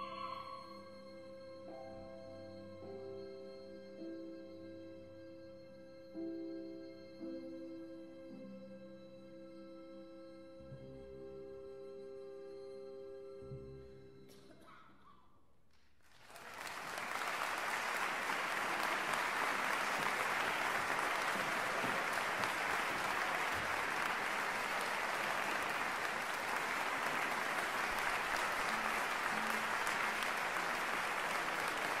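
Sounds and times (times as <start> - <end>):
audience applauding: 16.0 - 32.0.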